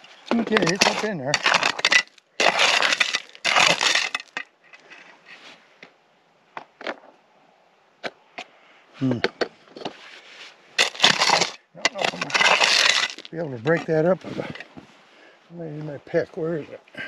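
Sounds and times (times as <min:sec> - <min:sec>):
digging tool crunching into gravel: 0:00.0 - 0:04.5, 0:10.8 - 0:14.7
loose stones clicking: 0:00.2 - 0:05.2, 0:10.8 - 0:14.8.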